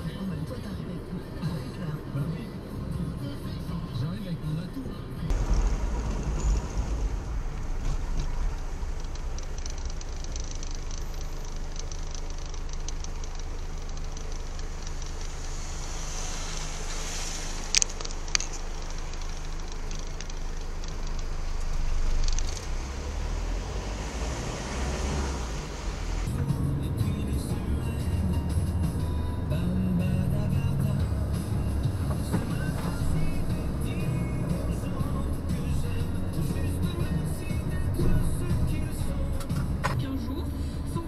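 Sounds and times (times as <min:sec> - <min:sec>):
road noise: 0:00.0 - 0:41.0
vehicle engine rumble: 0:00.0 - 0:41.0
sharp clicks: 0:05.4 - 0:22.7.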